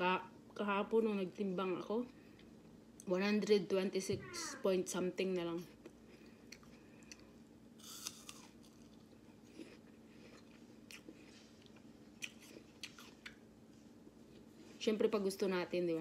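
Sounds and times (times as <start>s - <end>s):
faint steady hum: 0.0s - 16.0s
person chewing food: 5.8s - 13.5s
mouth clicks and crunches: 6.2s - 13.4s.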